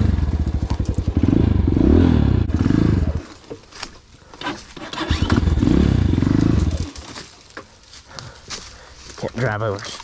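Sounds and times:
dirt bike engine revving: 0.0 - 3.4, 4.4 - 7.0.

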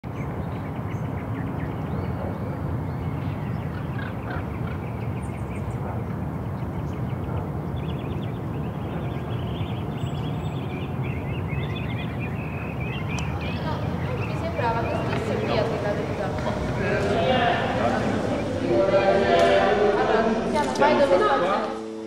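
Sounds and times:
bird chirps: 0.2 - 17.2
low outdoor rumble: 7.3 - 21.4.

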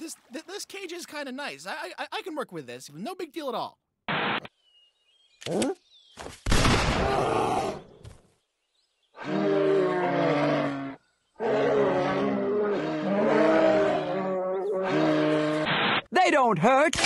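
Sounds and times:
bears roaring and grunting: 9.2 - 15.7.

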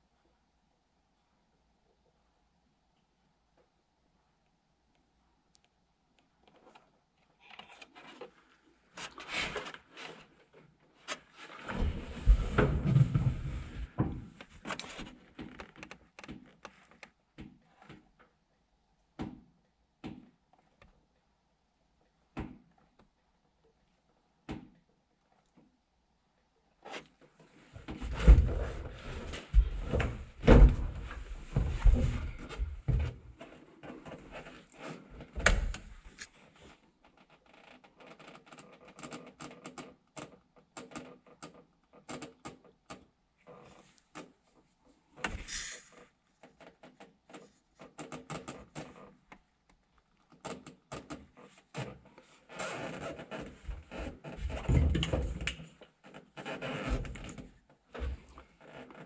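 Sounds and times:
brief scrape: 45.3 - 46.0.

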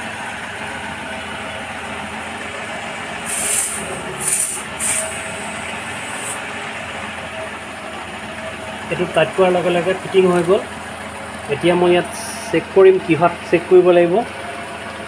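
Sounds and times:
car engine idling: 0.0 - 15.0
air hissing from tyre valve: 3.2 - 6.4.

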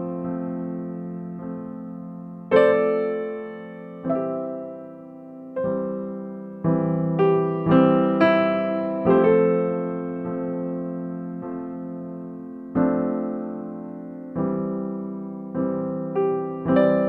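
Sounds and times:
piano chords ringing: 0.0 - 17.0.

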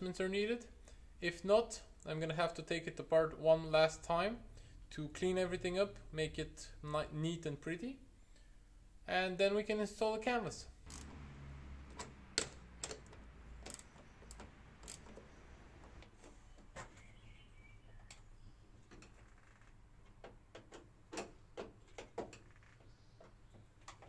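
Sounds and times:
socket ratchet clicking: 10.9 - 11.2, 11.9 - 15.3
hand tools clicking and tapping: 11.9 - 17.0, 20.0 - 24.0.

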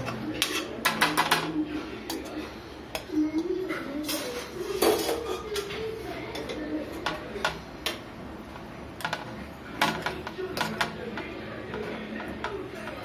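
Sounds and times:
spoon scraping a metal pot: 0.0 - 1.0.

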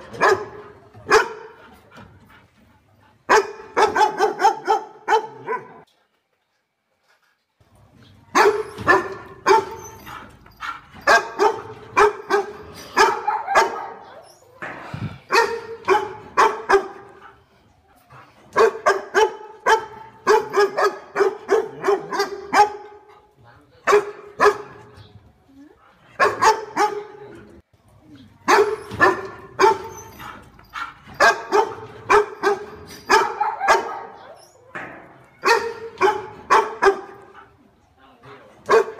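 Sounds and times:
dog barking: 0.1 - 1.6, 3.3 - 5.9, 8.3 - 9.9, 10.6 - 14.2, 15.3 - 17.3, 18.6 - 23.1, 23.9 - 24.9, 26.2 - 27.2, 28.5 - 29.9, 30.8 - 34.4, 35.4 - 37.5, 38.7 - 38.9.

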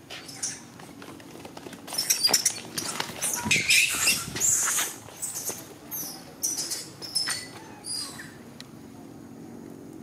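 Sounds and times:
baby monkey screaming: 3.2 - 8.4.

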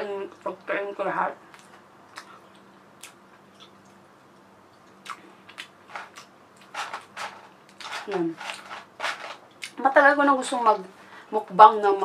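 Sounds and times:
faint steady hum: 0.0 - 12.0
person chewing food: 4.7 - 7.9.

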